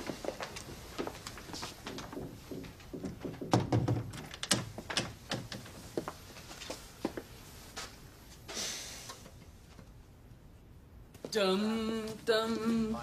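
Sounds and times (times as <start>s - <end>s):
footsteps on hard floor: 0.0s - 3.5s
wooden furniture thudding: 2.1s - 5.6s.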